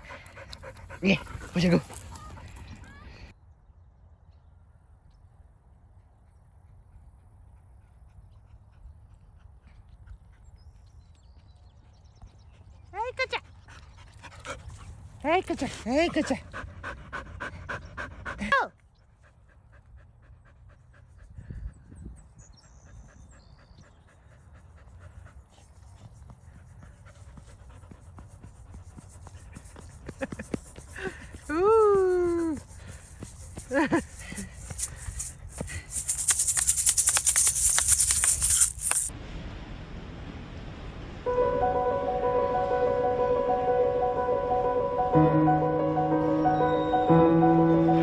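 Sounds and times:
dog panting rapidly: 0.0 - 3.0, 12.6 - 31.6, 32.2 - 39.1
low outdoor rumble: 38.9 - 45.0.

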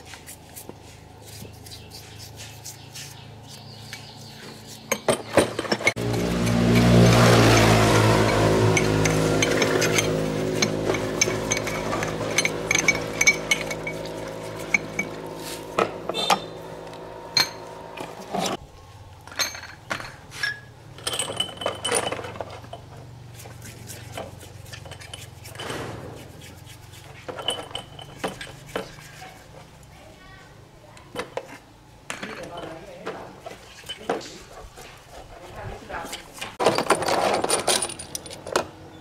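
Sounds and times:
metal bearings clinking: 3.4 - 18.6, 19.3 - 29.4, 33.6 - 34.4, 36.1 - 38.6
steady hum: 6.0 - 18.9.

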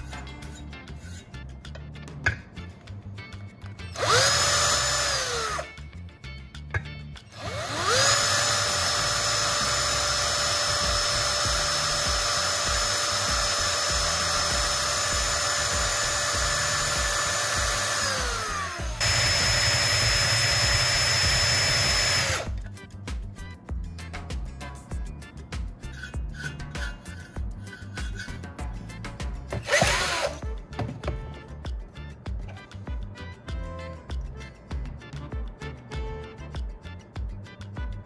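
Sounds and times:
background music: 0.0 - 38.0
electric drill boring into metal: 3.9 - 5.8, 7.3 - 22.6, 29.5 - 30.5.

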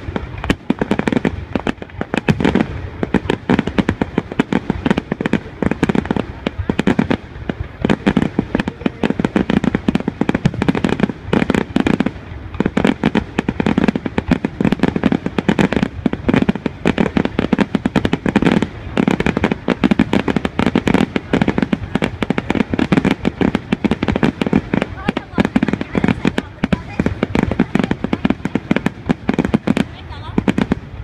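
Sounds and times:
fireworks bangs and crackles: 0.0 - 31.0.

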